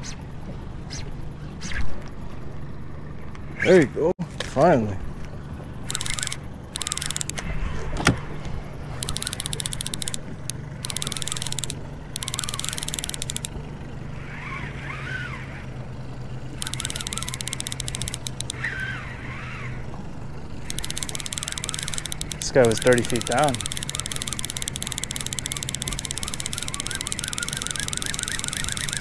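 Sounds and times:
boat motor humming: 0.0s - 29.0s
rapid mechanical clicking: 5.6s - 7.5s, 8.8s - 29.0s.

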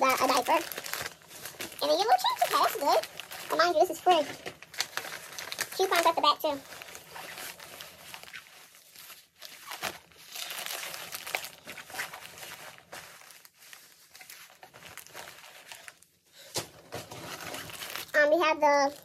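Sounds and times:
bag crinkling and rustling: 0.0s - 19.0s.

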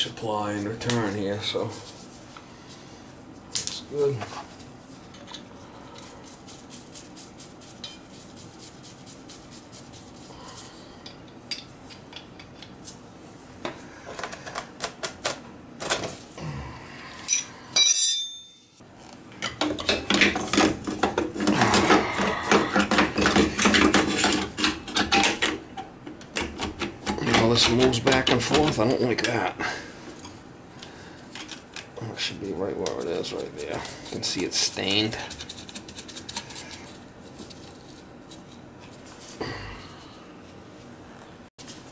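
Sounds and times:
metal tools clicking and clinking: 17.3s - 18.8s.

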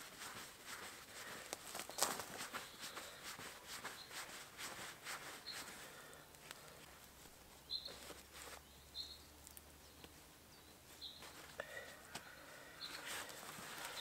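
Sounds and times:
rustling in dry leaves: 0.0s - 14.0s
bird chirps: 7.6s - 11.5s, 12.1s - 13.1s.

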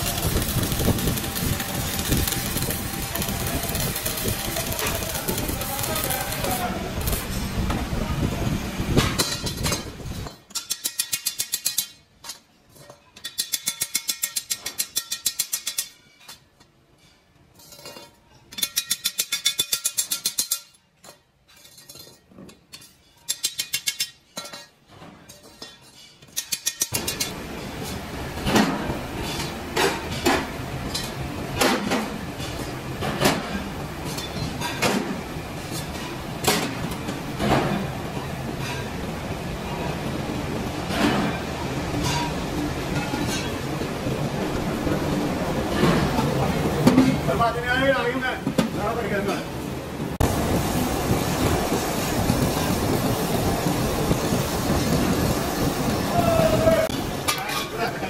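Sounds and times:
welding crackling: 0.0s - 10.3s, 26.5s - 31.3s, 50.2s - 58.0s
workshop din: 0.0s - 58.0s
steel rings clanking together: 9.0s - 32.7s, 42.0s - 43.6s.

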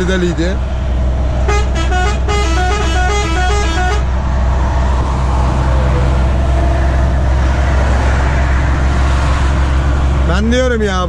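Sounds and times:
truck engine drone: 0.0s - 11.0s
musical truck air horn: 1.5s - 4.1s.

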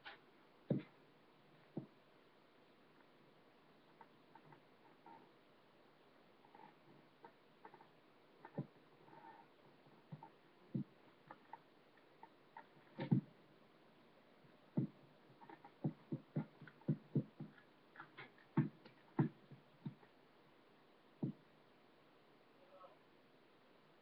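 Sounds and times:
pointe shoes knocking on floor: 0.7s - 0.9s, 10.1s - 10.9s, 13.0s - 13.3s, 14.8s - 15.0s, 15.8s - 17.6s, 18.6s - 20.0s, 21.2s - 21.4s.

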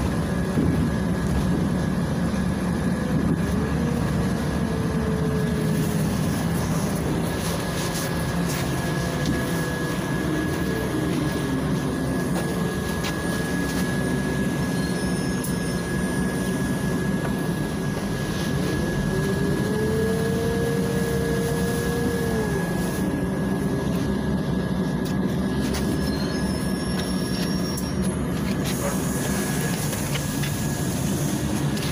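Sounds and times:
bus engine and road rumble: 0.0s - 31.9s
drivetrain whine: 0.0s - 31.9s
thin constant high tone: 10.0s - 20.4s.

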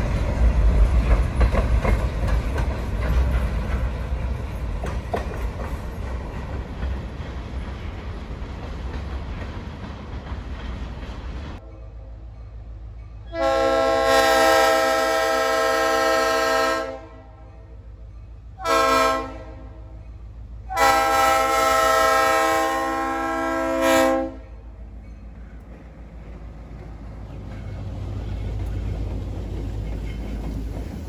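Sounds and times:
locomotive air horn blasts: 13.3s - 17.5s, 18.6s - 20.0s, 20.7s - 24.5s.

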